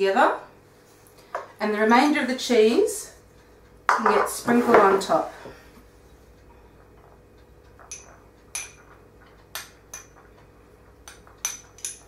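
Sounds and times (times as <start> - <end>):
spoon clinking against bowl: 7.8 - 10.3, 11.0 - 12.0.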